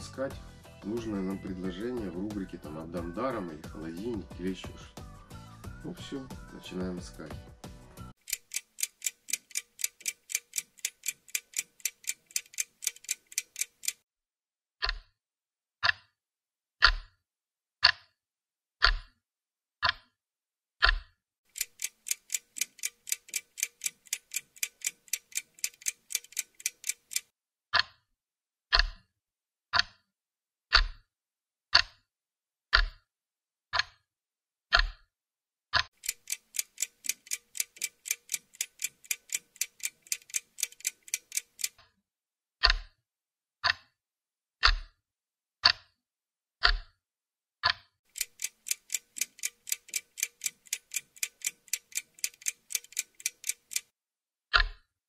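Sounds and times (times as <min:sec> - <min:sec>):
clock ticking: 0:00.8 - 0:04.8, 0:08.2 - 0:14.0, 0:14.8 - 0:15.2, 0:15.8 - 0:16.2, 0:16.8 - 0:17.2, 0:17.8 - 0:18.2, 0:18.8 - 0:19.2, 0:19.8 - 0:20.1, 0:20.8 - 0:28.0, 0:28.7 - 0:29.1, 0:29.7 - 0:30.0, 0:30.7 - 0:31.0, 0:31.7 - 0:32.0, 0:32.7 - 0:33.0, 0:33.7 - 0:34.0, 0:35.7 - 0:41.9, 0:42.6 - 0:43.0, 0:43.6 - 0:44.0, 0:44.6 - 0:44.9, 0:45.6 - 0:46.0, 0:46.6 - 0:46.9, 0:47.6 - 0:53.9.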